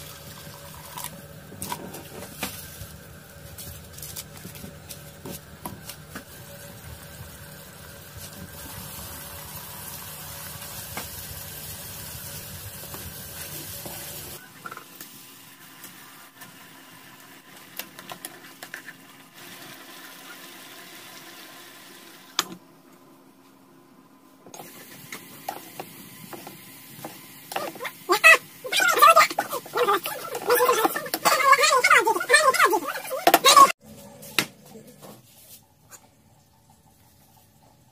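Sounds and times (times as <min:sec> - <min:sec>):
liquid sizzling and bubbling: 0:00.0 - 0:22.3.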